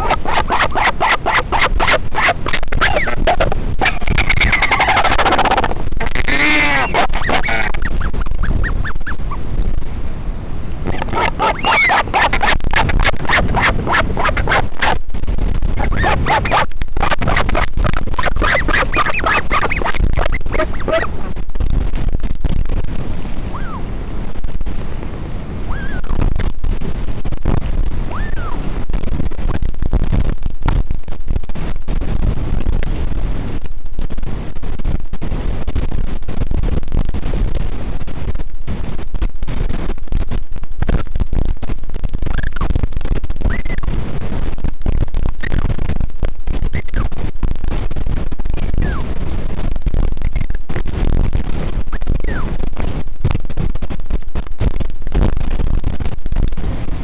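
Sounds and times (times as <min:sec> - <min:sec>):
albatross pulsed calls: 0:00.0 - 0:09.4, 0:10.9 - 0:15.0, 0:15.8 - 0:21.1, 0:23.5 - 0:23.8, 0:25.7 - 0:26.2, 0:28.1 - 0:28.6
faint short peeps: 0:00.0 - 0:09.4, 0:10.9 - 0:15.0, 0:15.8 - 0:21.1, 0:23.5 - 0:23.8, 0:25.7 - 0:26.2, 0:28.1 - 0:28.6, 0:42.3 - 0:42.7, 0:43.4 - 0:43.9, 0:48.8 - 0:49.1
wind noise on microphone: 0:00.0 - 0:57.0.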